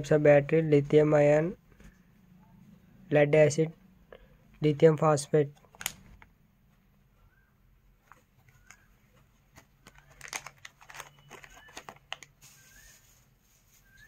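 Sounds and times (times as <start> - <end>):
plastic bag crinkling: 9.6 - 14.0.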